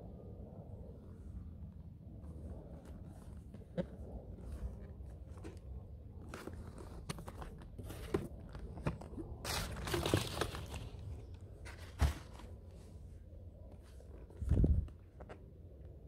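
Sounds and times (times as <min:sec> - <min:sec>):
cardboard box knocks and rustles: 0:11.7 - 0:12.5.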